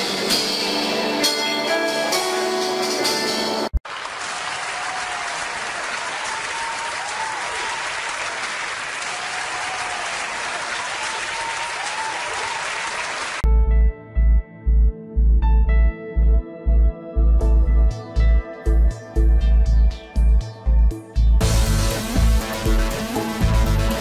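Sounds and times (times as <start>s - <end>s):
band music: 0.0s - 3.8s, 21.4s - 24.0s
calm instrumental music: 0.0s - 3.8s, 13.4s - 24.0s
large audience applauding: 3.8s - 13.4s.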